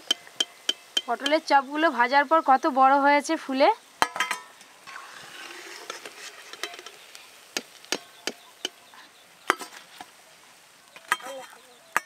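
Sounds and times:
metal spoon clinking on pan: 0.0 - 1.5, 4.0 - 5.0, 6.5 - 7.0, 11.1 - 12.0
food sizzling in hot oil: 0.0 - 12.0.

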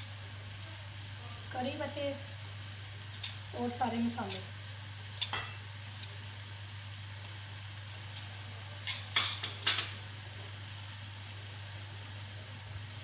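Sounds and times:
food sizzling in a pot: 0.0 - 13.0
low steady hum: 0.0 - 13.0.

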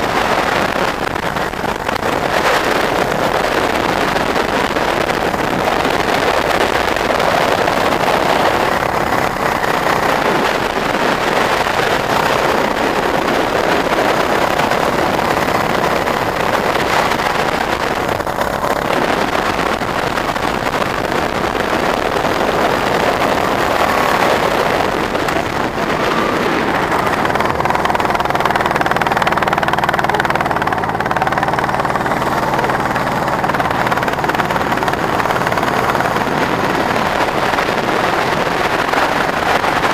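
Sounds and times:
go-kart engine running: 0.0 - 39.9.

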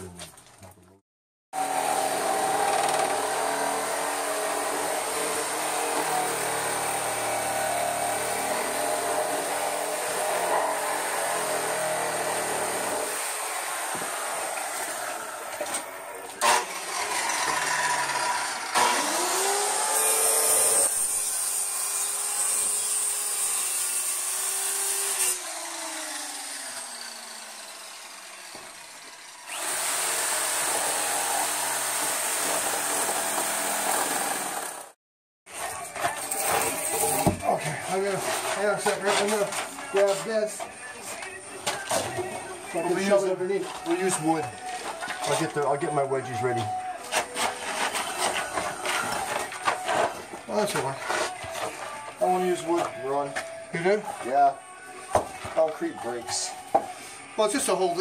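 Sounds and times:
power tool motor running: 1.6 - 15.3, 16.4 - 35.0.

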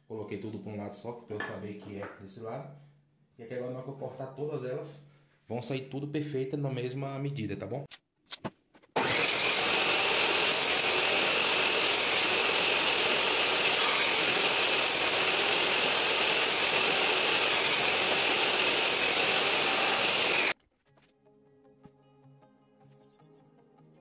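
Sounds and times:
saw cutting wood rasp: 9.0 - 20.6
table saw running: 9.0 - 20.6.

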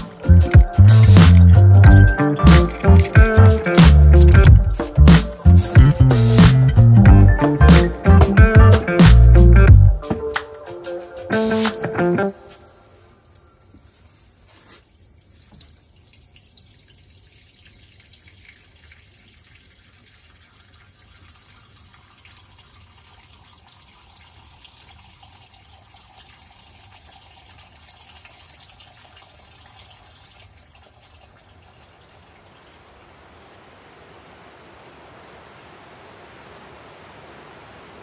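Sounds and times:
liquid trickling into bucket: 13.2 - 33.7.

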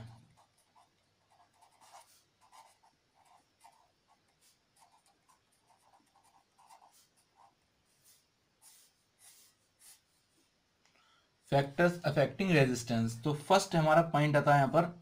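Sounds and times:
marker pen scratching on paper: 0.0 - 10.4.

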